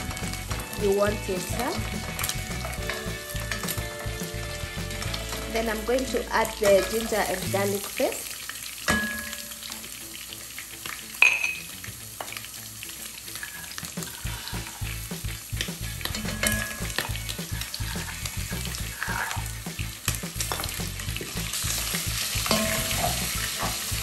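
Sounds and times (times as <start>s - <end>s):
meat and onions sizzling: 0.0s - 24.0s
spoon stirring and scraping: 1.8s - 7.7s, 15.8s - 19.5s, 21.7s - 24.0s.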